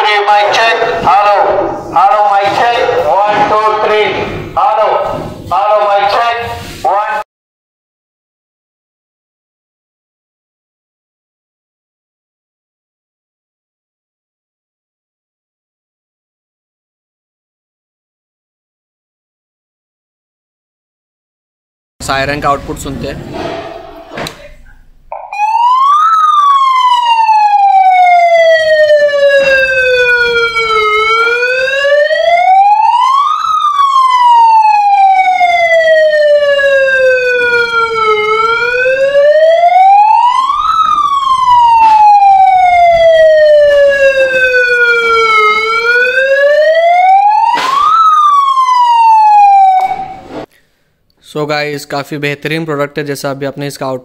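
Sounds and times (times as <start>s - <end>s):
megaphone siren wailing: 0.0s - 7.2s, 25.1s - 50.3s.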